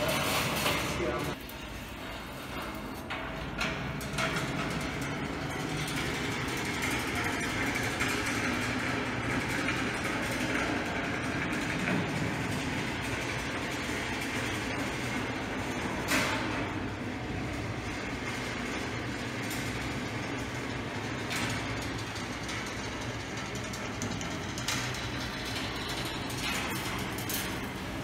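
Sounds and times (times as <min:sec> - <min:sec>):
metal ball rolling on rails: 0:00.0 - 0:28.0.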